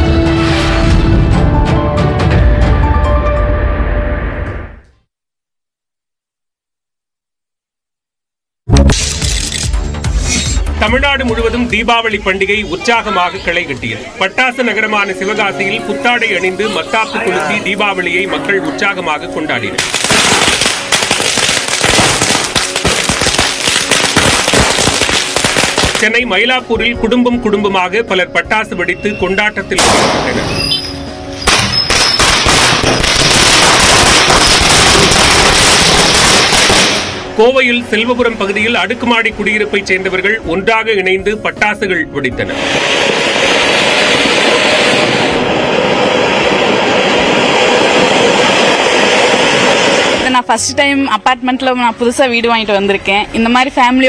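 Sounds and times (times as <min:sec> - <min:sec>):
firecrackers crackling: 0:19.8 - 0:26.4, 0:29.8 - 0:37.4, 0:42.6 - 0:50.4.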